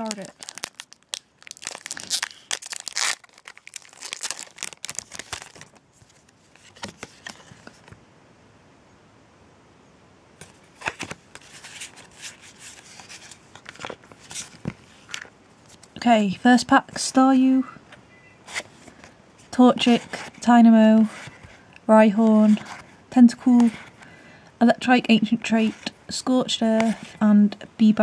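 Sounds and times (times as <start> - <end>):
foil wrapper tearing and crinkling: 0.0 - 5.8
cards rustling: 0.0 - 8.0, 10.4 - 16.0, 18.5 - 24.2, 26.6 - 27.2.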